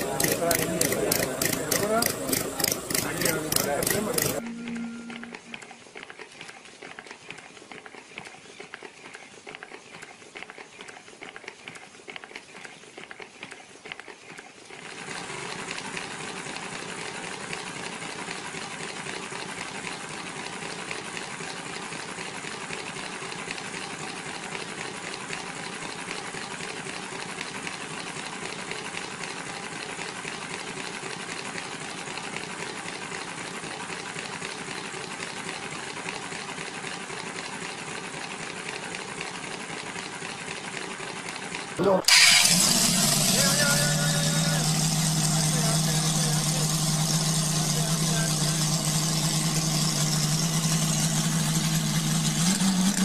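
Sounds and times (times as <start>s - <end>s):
model engine clattering: 0.0s - 4.4s, 5.5s - 53.0s.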